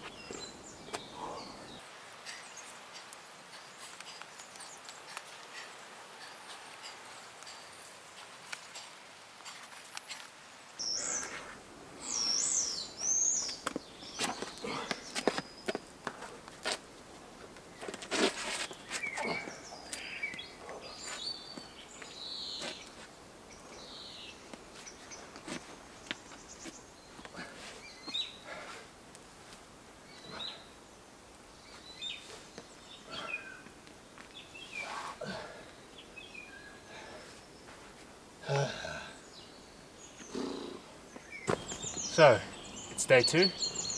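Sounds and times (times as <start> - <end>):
birds singing and chirping: 0.0 - 10.2, 10.8 - 15.9, 18.6 - 28.7, 30.0 - 30.8, 31.5 - 37.8, 38.4 - 43.9
shoes and hands scraping rock: 13.4 - 16.8, 17.8 - 19.5.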